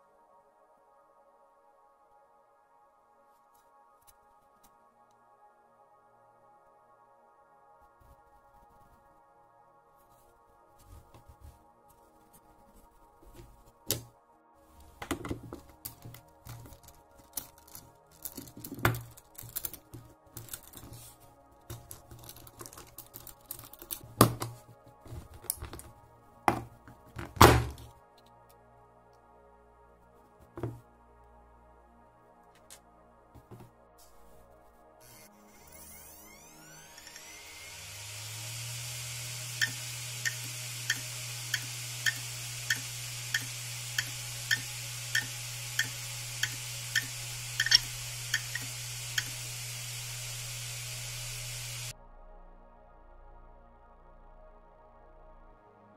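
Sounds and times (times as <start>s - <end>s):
faint background music: 0.0s - 50.9s, 51.6s - 55.9s
screwdriver clicks and scrapes on metal: 15.9s - 21.0s, 21.7s - 24.5s, 39.6s - 49.4s
hard drive motor humming: 35.0s - 51.9s
hard drive head clicking: 39.4s - 51.9s.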